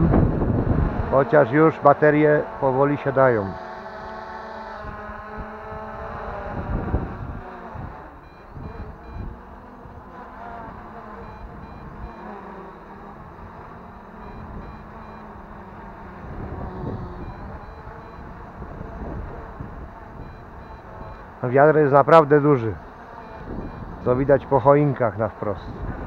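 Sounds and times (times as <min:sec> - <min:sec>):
wind rumbling on microphone: 0:00.0 - 0:01.4, 0:04.7 - 0:21.4, 0:22.7 - 0:24.7, 0:25.4 - 0:26.0
quadcopter buzzing: 0:00.0 - 0:26.0
short high-pitched beeps: 0:08.2 - 0:09.6, 0:11.0 - 0:15.5, 0:16.5 - 0:18.6, 0:20.2 - 0:21.4, 0:23.2 - 0:24.1.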